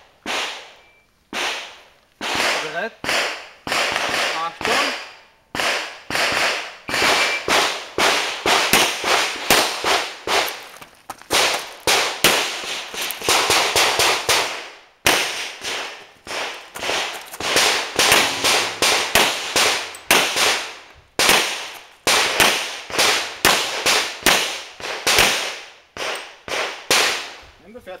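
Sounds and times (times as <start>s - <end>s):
handgun shots: 15.1s - 27.3s.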